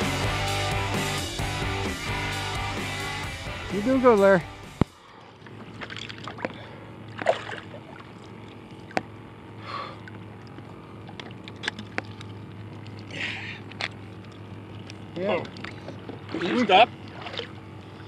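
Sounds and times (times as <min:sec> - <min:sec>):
low steady hum: 0:00.0 - 0:18.0
water lapping against a kayak: 0:05.0 - 0:18.0.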